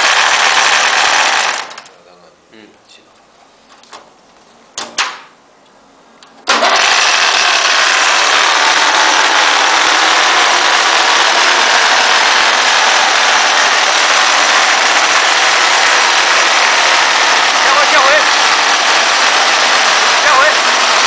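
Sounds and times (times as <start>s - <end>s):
plastering machine motor running: 0.0s - 1.9s, 6.5s - 21.0s.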